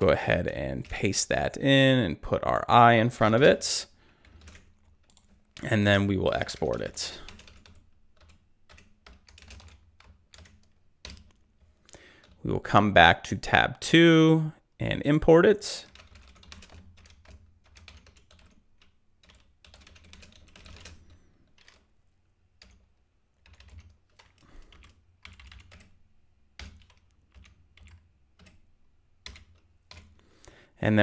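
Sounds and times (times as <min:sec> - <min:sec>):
faint keyboard typing: 0:03.4 - 0:12.4, 0:15.8 - 0:30.6.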